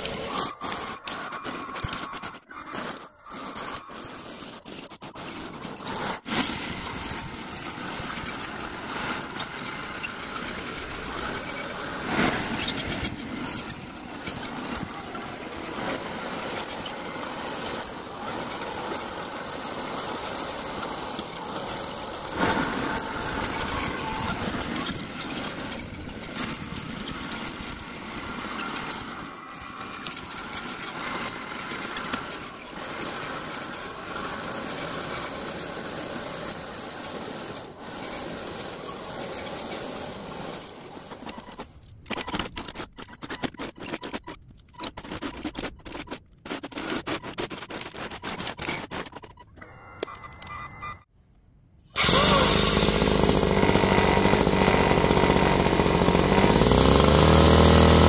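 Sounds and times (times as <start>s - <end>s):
squeaks and clicks from tracks: 0.0s - 52.4s
high-pitched motor whine: 52.0s - 58.0s.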